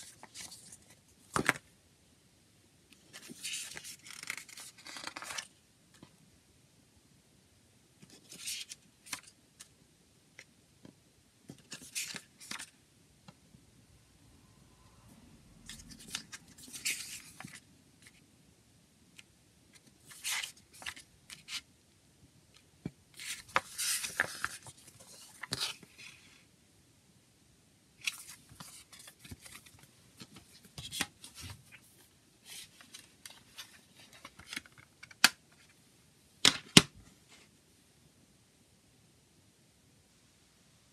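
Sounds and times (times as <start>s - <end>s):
paper pages turning: 0.0s - 1.6s, 3.1s - 5.5s, 8.2s - 9.4s, 11.6s - 12.8s, 15.6s - 18.2s, 19.8s - 21.6s, 23.2s - 26.2s, 28.0s - 31.8s, 32.4s - 35.7s
paper rustling: 3.1s - 5.5s, 23.2s - 26.2s.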